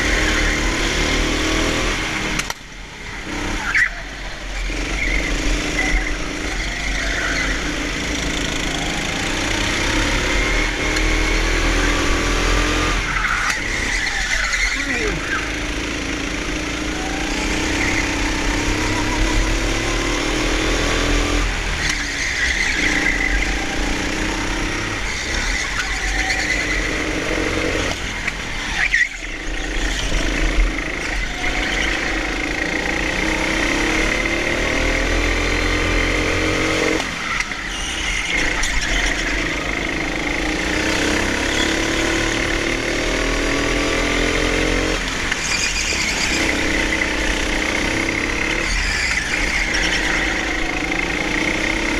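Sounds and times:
kart engine revving: 0:00.0 - 0:51.9
tyres squealing on concrete: 0:03.6 - 0:09.6, 0:12.9 - 0:15.7, 0:21.6 - 0:27.8, 0:28.7 - 0:29.8, 0:37.1 - 0:40.0, 0:45.4 - 0:51.9.

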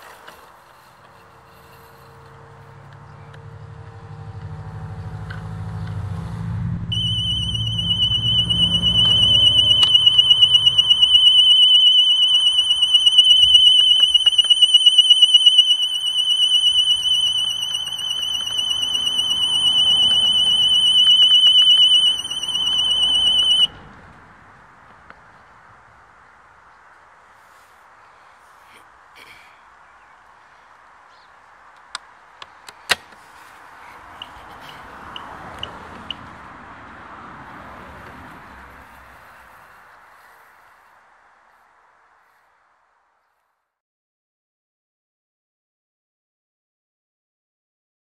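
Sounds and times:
warbling electronic alarm tone: 0:06.9 - 0:23.7.

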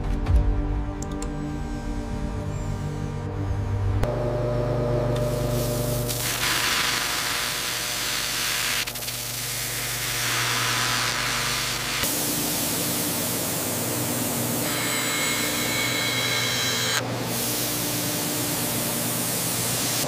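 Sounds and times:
low hum: 0:00.4 - 0:06.1
mill cutting steel with coolant: 0:05.2 - 0:20.0.

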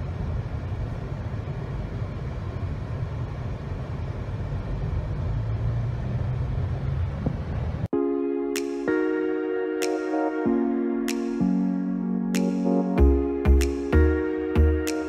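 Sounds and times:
car road and engine rumble: 0:00.0 - 0:07.9.

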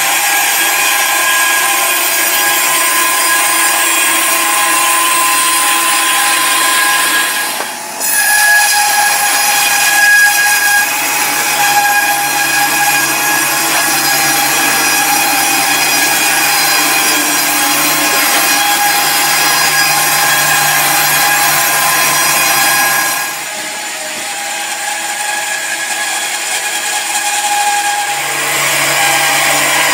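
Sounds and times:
band saw blade cutting timber: 0:00.0 - 0:29.9.

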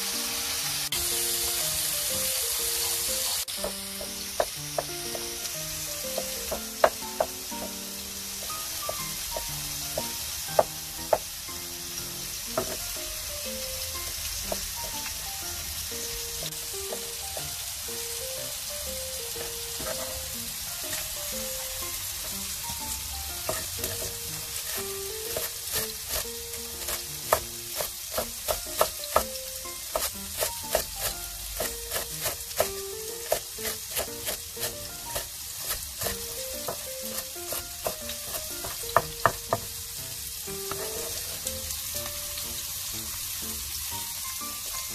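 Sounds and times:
soft background music: 0:00.0 - 0:44.9
steady hiss: 0:00.0 - 0:44.9
cleaver chopping on wooden board: 0:03.6 - 0:05.3, 0:06.1 - 0:07.8, 0:12.6 - 0:12.8, 0:23.5 - 0:26.2, 0:26.8 - 0:29.3, 0:29.9 - 0:39.7.

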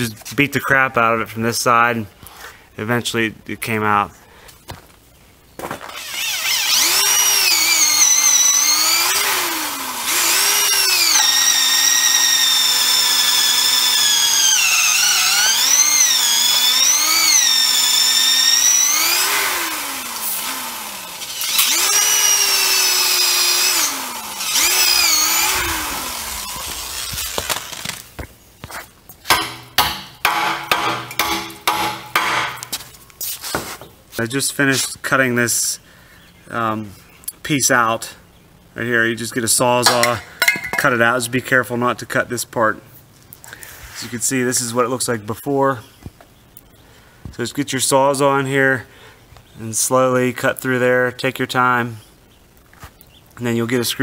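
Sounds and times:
electric drill motor whine: 0:05.8 - 0:28.0
sledgehammer blows on metal: 0:29.3 - 0:32.8.

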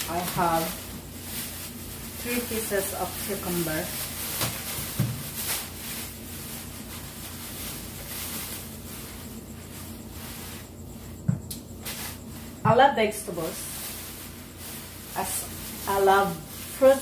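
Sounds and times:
low steady hum: 0:00.0 - 0:17.0
plastic bag rustling: 0:00.0 - 0:17.0.

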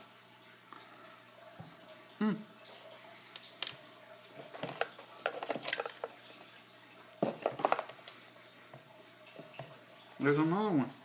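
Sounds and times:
small hard objects clattering: 0:04.5 - 0:06.1, 0:07.2 - 0:08.0.

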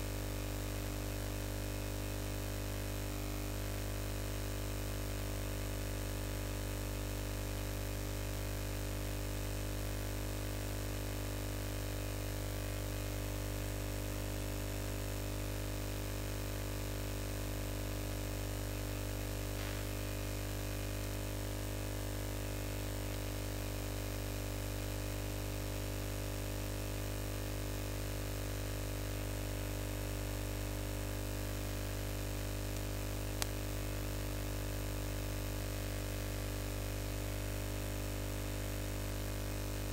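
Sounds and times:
electrical mains hum: 0:00.0 - 0:05.2, 0:32.1 - 0:37.2.

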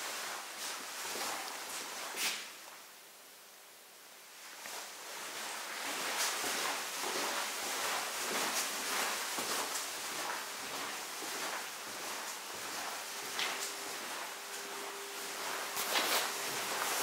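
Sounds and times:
clothing rustling: 0:04.4 - 0:17.0
footsteps on hard floor: 0:04.6 - 0:17.0.

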